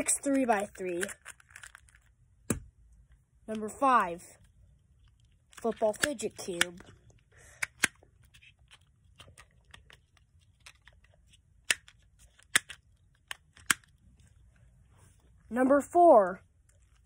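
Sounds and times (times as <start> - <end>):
plastic puzzle cube clicks and rattles: 0.1 - 2.2, 4.9 - 14.0.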